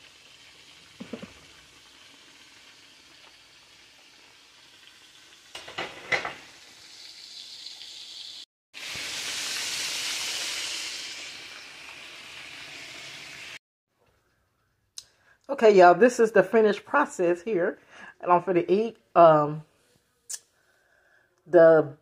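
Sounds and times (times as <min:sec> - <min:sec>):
pots boiling and hissing: 0:00.0 - 0:13.6.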